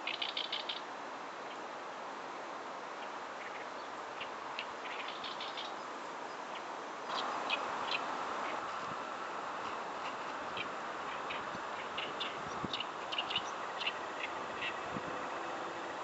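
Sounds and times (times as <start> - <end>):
bird chirping: 0.0 - 0.9, 3.0 - 8.8, 10.1 - 16.0
steady background hiss: 0.0 - 16.0.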